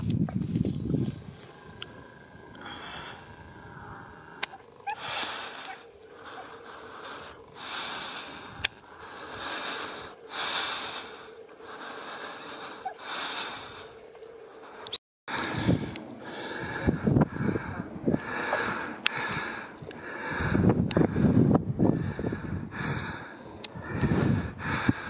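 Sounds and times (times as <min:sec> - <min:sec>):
heavy breathing: 0:00.4 - 0:25.0
sharp clicks: 0:04.3 - 0:04.6, 0:08.6 - 0:08.9.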